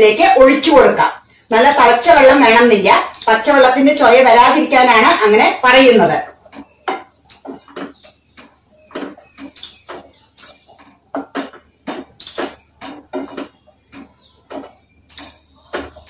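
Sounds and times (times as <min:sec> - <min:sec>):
wooden spoon scraping a pan: 0:06.2 - 0:16.0.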